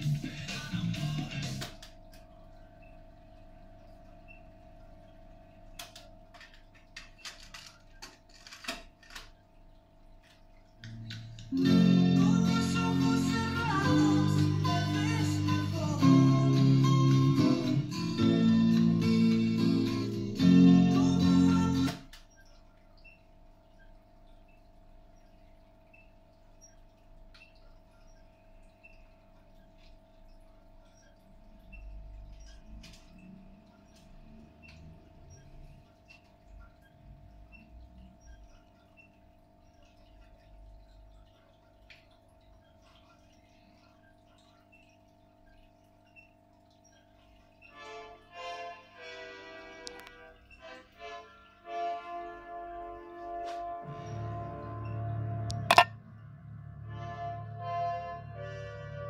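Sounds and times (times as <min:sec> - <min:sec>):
guitar music through speakers: 0:00.0 - 0:01.8, 0:11.5 - 0:22.0
faint electrical hum: 0:00.0 - 0:59.0
plastic button clicks: 0:55.7 - 0:55.9.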